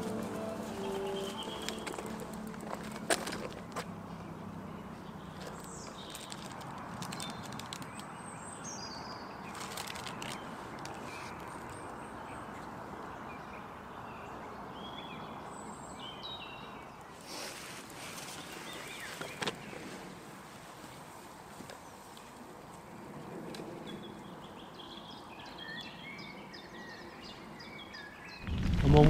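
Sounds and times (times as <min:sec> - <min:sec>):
woodland background hiss: 0:00.0 - 0:02.6
songbirds chirping: 0:00.0 - 0:29.0
rustling: 0:09.5 - 0:11.8.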